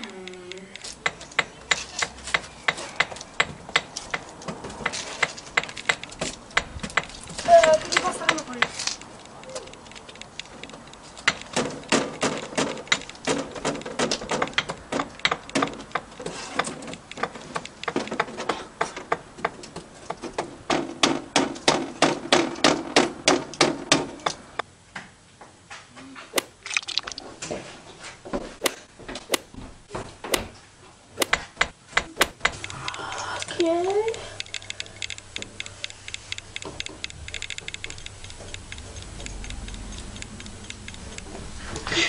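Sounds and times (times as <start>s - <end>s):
hammer striking wooden board: 26.4s - 26.6s, 28.6s - 29.6s, 30.3s - 30.6s, 31.2s - 31.4s, 32.2s - 32.5s.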